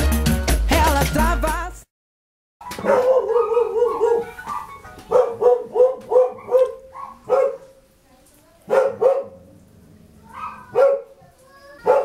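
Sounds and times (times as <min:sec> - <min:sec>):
dog barking and yelping: 0:02.6 - 0:07.8, 0:08.7 - 0:09.5, 0:10.2 - 0:11.2, 0:11.8 - 0:12.0.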